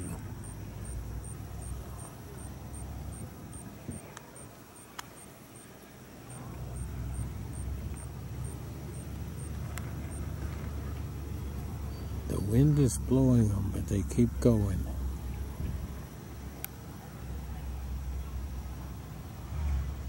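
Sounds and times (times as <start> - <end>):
wind buffeting microphone: 0.0 - 4.5
faint high ticking: 0.0 - 16.8
small clicks: 4.1 - 5.2.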